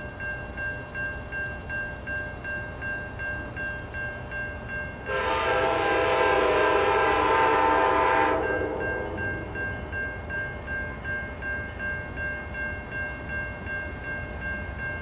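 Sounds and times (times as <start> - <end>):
crossing bell ringing: 0.0 - 15.0
locomotive air horn: 5.1 - 9.5.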